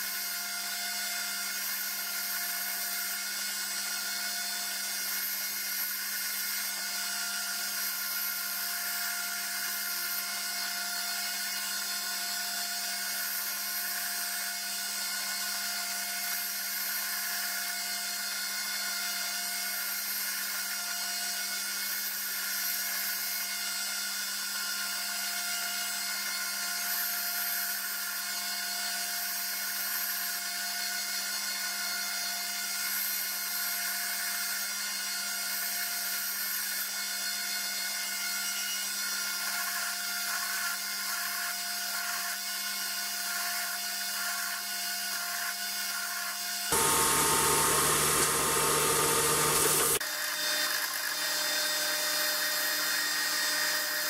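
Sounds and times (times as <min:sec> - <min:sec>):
belt grinder grinding steel: 0:43.2 - 0:51.4.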